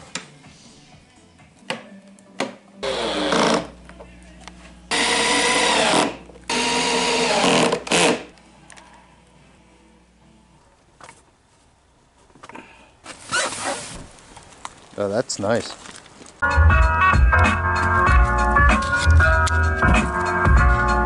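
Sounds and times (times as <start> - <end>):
drill motor whirring: 2.8 - 3.7, 4.9 - 8.3.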